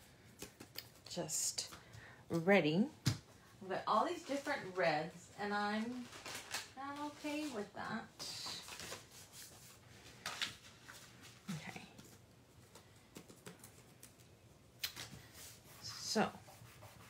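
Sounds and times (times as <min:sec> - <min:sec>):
paper rustling: 0:05.7 - 0:07.7, 0:08.3 - 0:16.0.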